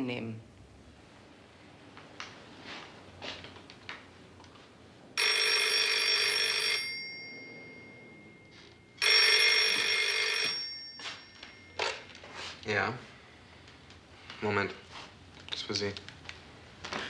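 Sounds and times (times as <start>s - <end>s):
telephone bell ringing: 5.2s - 12.4s.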